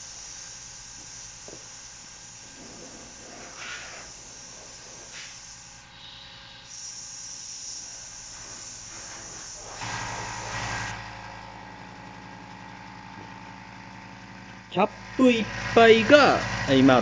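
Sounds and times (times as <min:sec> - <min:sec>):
water spraying from hose nozzle: 0:02.5 - 0:05.6.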